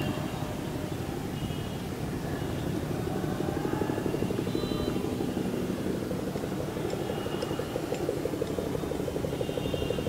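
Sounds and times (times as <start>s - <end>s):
helicopter rotor beating: 2.0s - 10.0s
helicopter engine: 2.2s - 10.0s.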